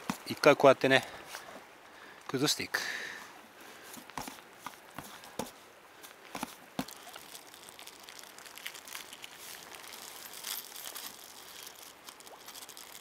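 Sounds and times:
krill block crunching: 6.4 - 13.0.

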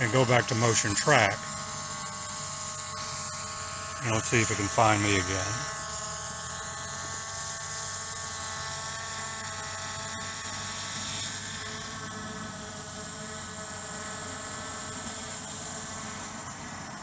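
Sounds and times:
drone propellers whining: 10.2 - 17.0.

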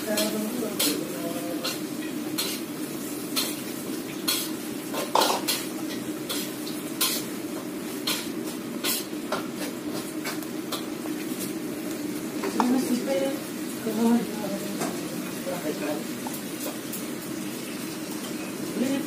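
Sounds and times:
frying sizzle: 0.0 - 19.0
metal utensil scraping pan: 0.1 - 2.7, 6.3 - 7.3, 8.0 - 9.7.

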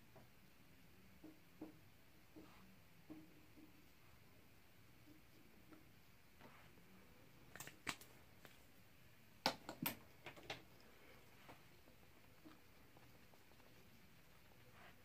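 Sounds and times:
makeup containers clicking and tapping: 9.4 - 10.7.

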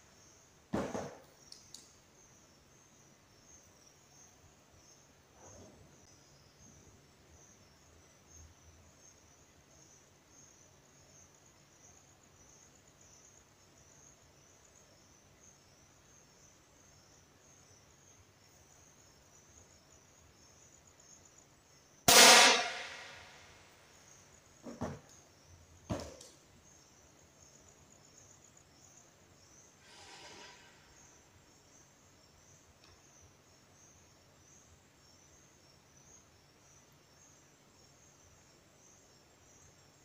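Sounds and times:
insects chirping faintly: 0.0 - 40.0
air pistol shot: 22.1 - 23.4.

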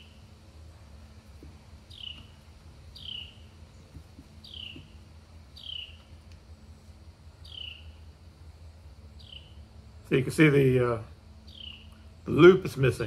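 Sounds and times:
bird calling: 0.0 - 0.4, 1.8 - 6.3, 7.4 - 8.1, 9.1 - 9.7, 11.4 - 12.4
faint low hum: 0.0 - 13.0.

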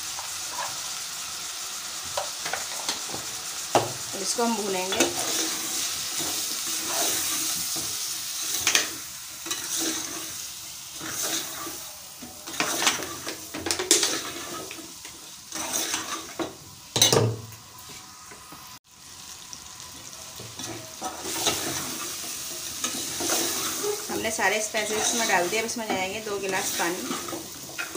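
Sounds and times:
oil sizzling: 0.0 - 27.9
metal ladle scraping a pot: 5.0 - 7.8, 8.5 - 10.4, 11.0 - 14.8, 15.5 - 16.5, 20.6 - 25.8, 26.6 - 27.9.

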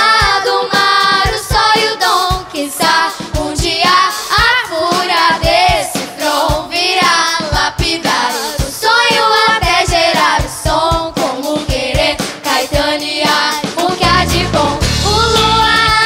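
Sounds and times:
girls singing pop song: 0.0 - 16.0
drum beat: 0.2 - 16.0
electric guitar: 14.0 - 15.8.

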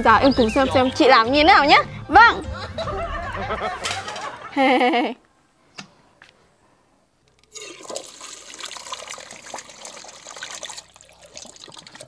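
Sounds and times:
water running into a steel bowl: 7.5 - 12.0.

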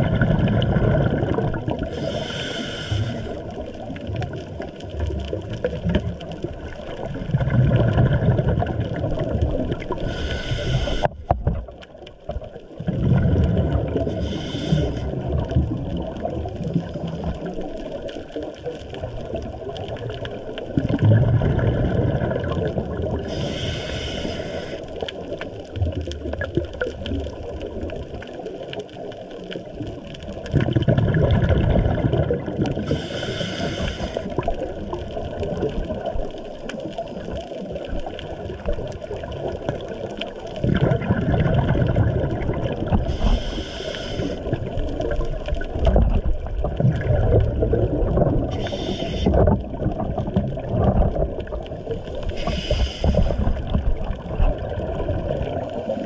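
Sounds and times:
underwater bubbles rumbling: 0.0 - 56.0
regulator hiss: 1.9 - 3.4, 10.0 - 11.1, 14.1 - 15.1, 23.3 - 24.9, 32.9 - 34.3, 43.1 - 44.5, 48.5 - 49.4, 52.3 - 53.5.

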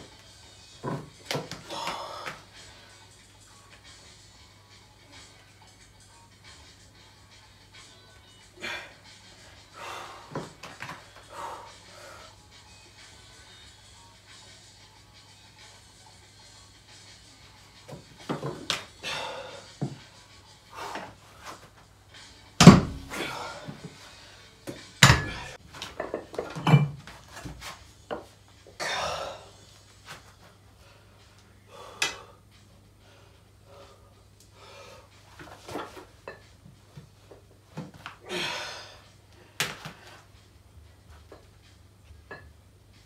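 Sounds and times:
hard exhaled breaths: 1.6 - 3.1, 8.6 - 12.4, 19.0 - 19.9, 23.0 - 24.6, 38.2 - 40.3.

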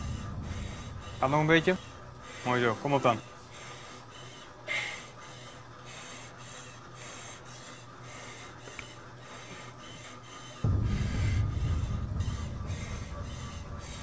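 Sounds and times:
loud low rumble: 0.0 - 3.6, 10.6 - 14.0
exercise bike humming: 0.0 - 14.0
person panting: 3.5 - 10.5.

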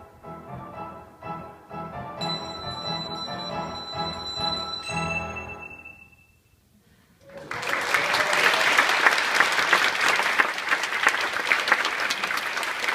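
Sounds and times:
handbells ringing a chord: 2.2 - 6.5
audience applause: 7.3 - 12.9.

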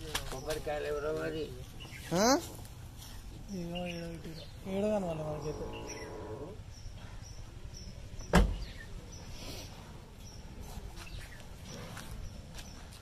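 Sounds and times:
car door slamming: 8.2 - 8.7.

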